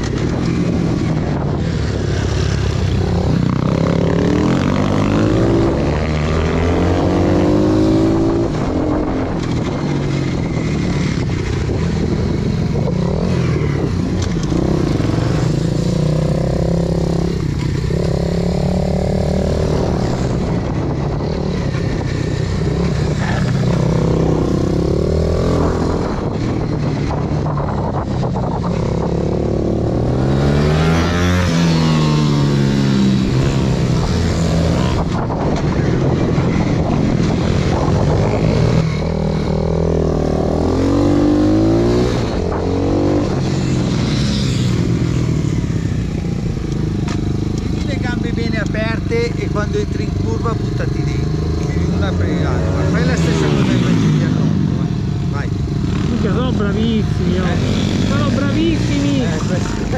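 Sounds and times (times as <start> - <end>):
motorbike engine revving: 0.0 - 59.9.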